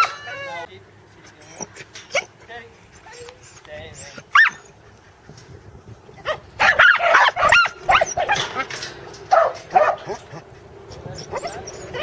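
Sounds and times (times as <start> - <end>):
dog barking in sharp yips: 3.1 - 4.7, 6.2 - 8.6, 9.3 - 10.4.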